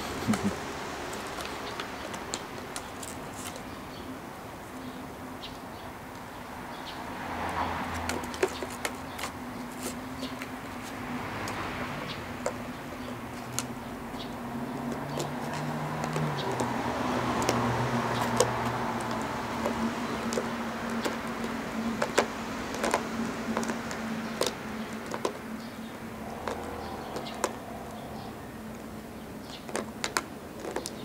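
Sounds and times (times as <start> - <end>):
dog chewing plastic bottle: 14.8 - 27.6, 29.4 - 31.0.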